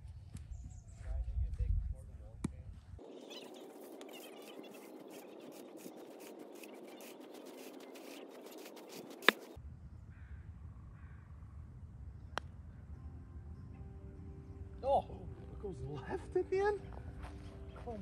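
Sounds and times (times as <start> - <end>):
rake scraping through sand: 3.2 - 9.6.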